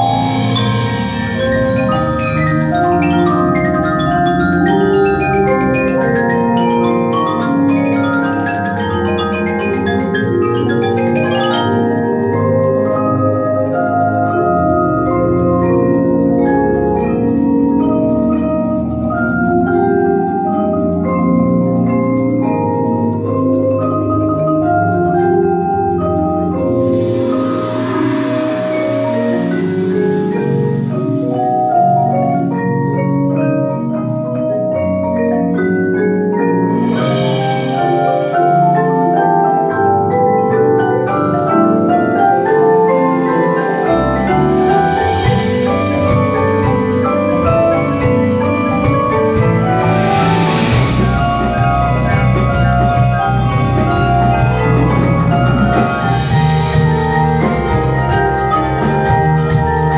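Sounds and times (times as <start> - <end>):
low bass notes: 0.0 - 23.5, 43.4 - 59.9
marimbas playing interlocking patterns: 0.0 - 59.9
steady high ticking rhythm: 0.0 - 59.9
cymbal swell: 26.8 - 31.3, 49.4 - 54.6.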